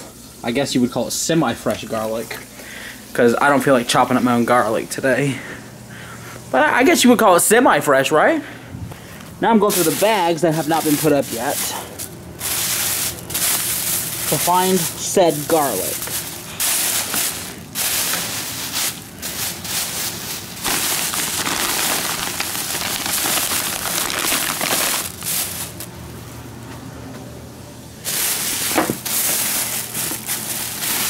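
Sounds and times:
plastic bags rustling: 8.9 - 26.0, 28.0 - 31.0.

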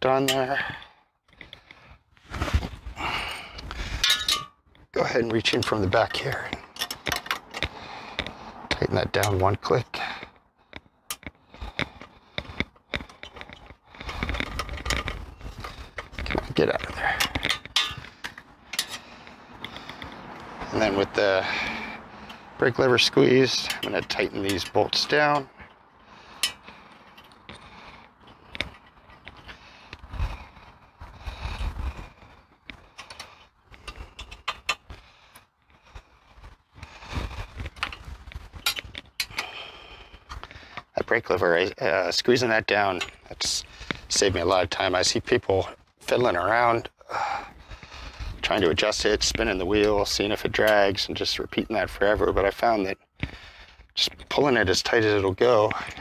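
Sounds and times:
rubbing and scraping: 1.5 - 3.0, 11.3 - 39.3.

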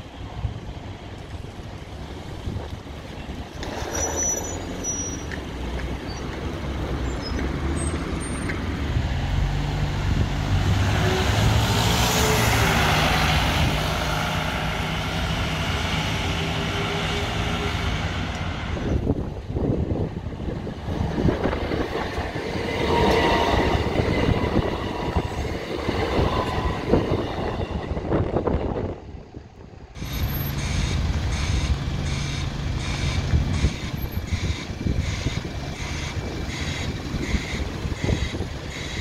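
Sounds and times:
diesel bus engine running: 27.5 - 39.0.

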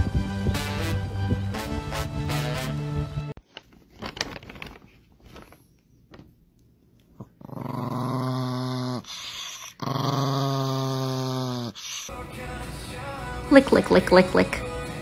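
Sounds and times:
small dog growling: 7.2 - 12.1.

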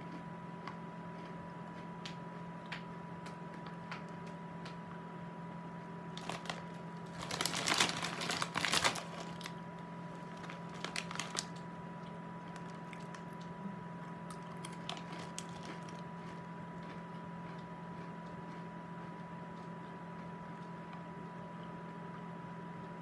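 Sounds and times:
faint electrical hum: 0.0 - 23.0
pretzel crunching: 6.1 - 13.5, 14.1 - 19.9
snack bag crinkling: 6.2 - 13.5, 14.2 - 18.6.

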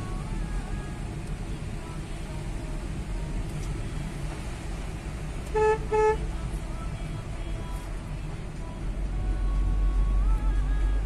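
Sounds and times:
car cabin rumble: 0.0 - 11.0
car horn toot: 5.5 - 6.3.

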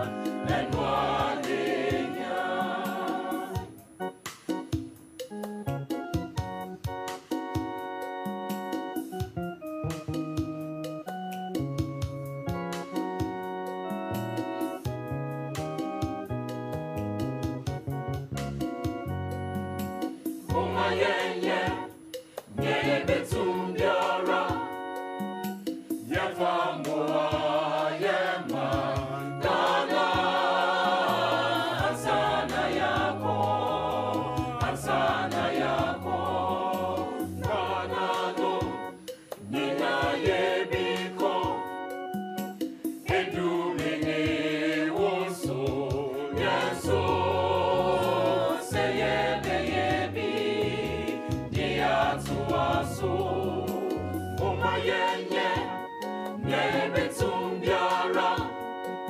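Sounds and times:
voices singing together: 0.0 - 3.9, 20.2 - 59.0
bass line and percussion: 0.0 - 59.0.

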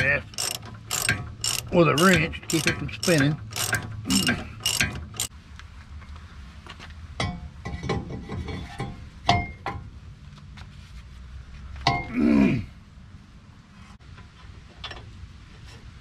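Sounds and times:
ratchet wrench clicking: 0.0 - 5.3
light metallic clinks of tools: 0.4 - 5.3.

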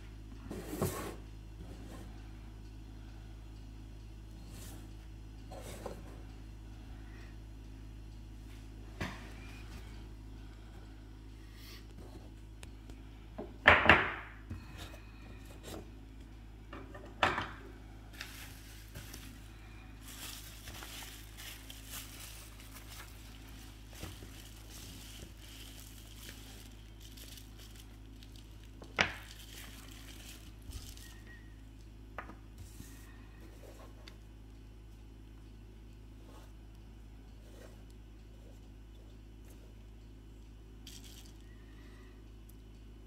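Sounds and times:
bubble wrap and plastic bag crinkling: 18.1 - 31.7, 40.8 - 41.5.

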